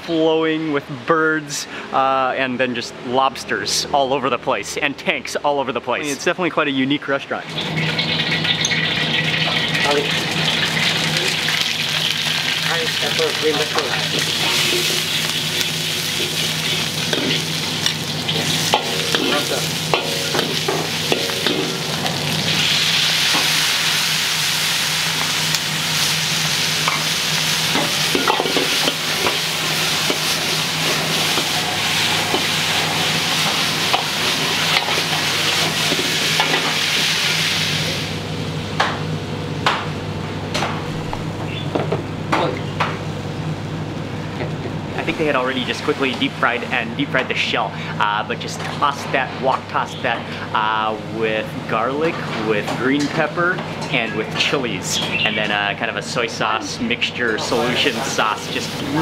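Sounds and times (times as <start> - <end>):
food sizzling in a wok: 7.6 - 38.4, 57.7 - 59.0.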